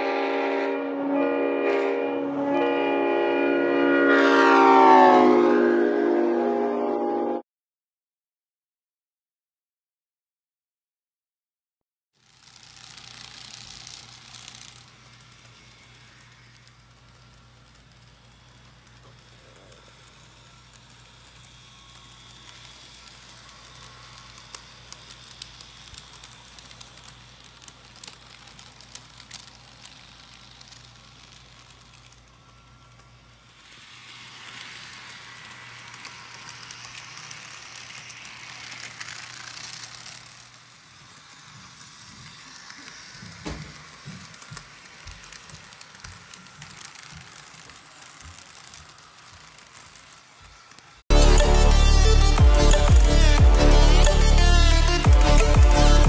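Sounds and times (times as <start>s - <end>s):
model train motor hum: 12.2s - 56.0s
wheels clicking on rail joints: 12.2s - 56.0s.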